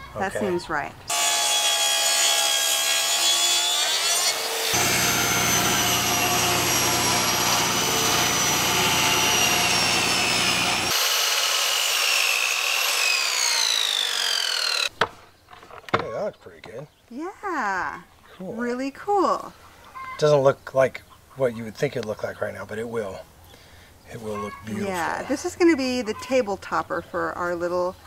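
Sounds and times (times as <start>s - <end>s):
saw motor winding down: 1.1s - 2.0s, 4.3s - 14.9s
table saw ripping boards: 1.1s - 16.0s
track saw motor whine: 4.7s - 14.9s.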